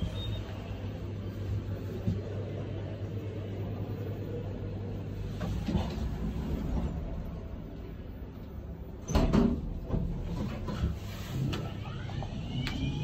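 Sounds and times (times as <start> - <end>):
lift doors sliding closed: 8.9 - 13.0.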